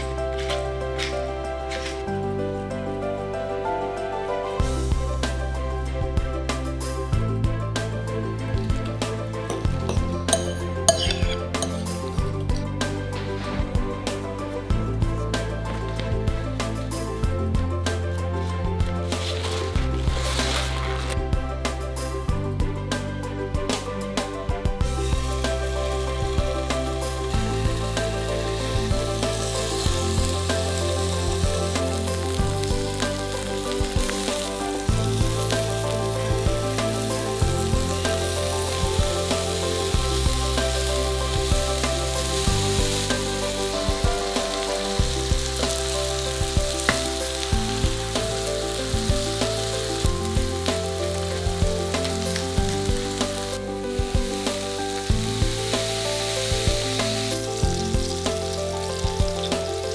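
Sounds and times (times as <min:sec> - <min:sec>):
soft background music: 0:00.0 - 0:59.9
food sizzling in a pan: 0:08.6 - 0:16.2, 0:19.0 - 0:21.3, 0:24.8 - 0:59.9.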